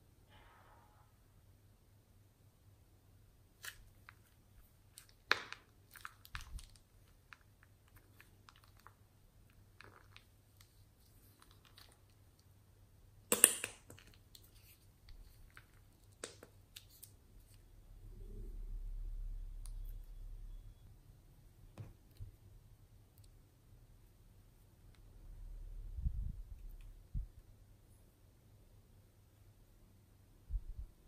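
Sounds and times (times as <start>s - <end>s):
plastic bag of slime crackling: 3.6s - 12.4s.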